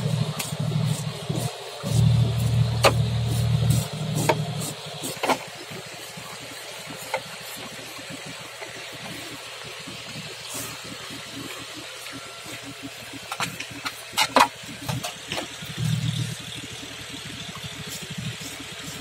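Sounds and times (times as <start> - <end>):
low engine hum: 0.0 - 7.0, 14.6 - 19.0
steady outdoor hiss: 0.0 - 19.0.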